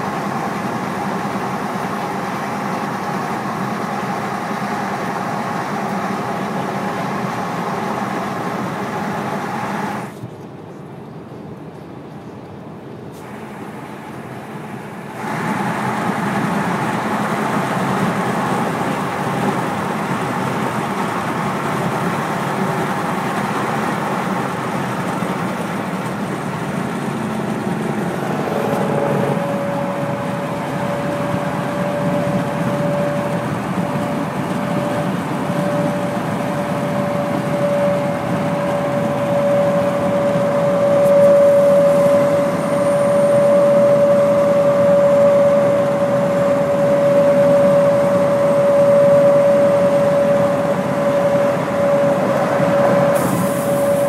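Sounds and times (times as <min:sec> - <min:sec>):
steady single tone: 0:27.3 - 0:54.0.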